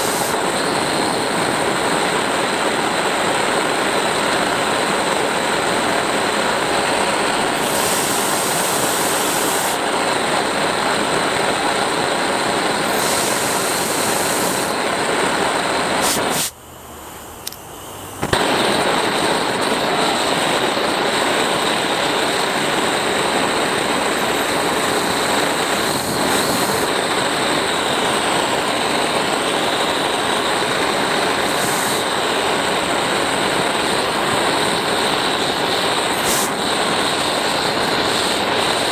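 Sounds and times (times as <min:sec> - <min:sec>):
blowtorch flame hissing: 0:00.0 - 0:38.9
sharp click: 0:17.4 - 0:17.6.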